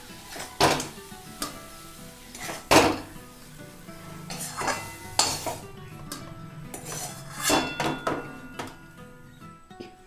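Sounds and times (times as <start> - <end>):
metal spatula scraping a pan: 0.0 - 10.0.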